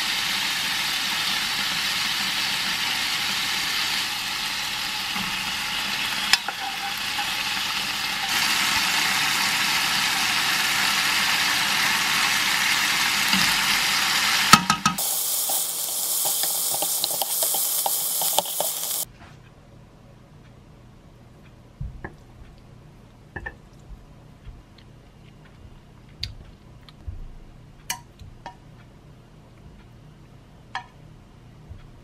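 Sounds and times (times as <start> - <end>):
food sizzling in a frying pan: 0.0 - 19.1.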